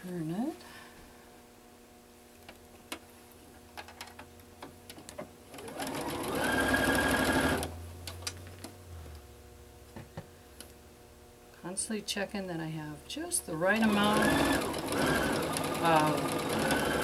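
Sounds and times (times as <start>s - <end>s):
sewing machine stitching: 5.6s - 7.7s, 13.7s - 17.0s.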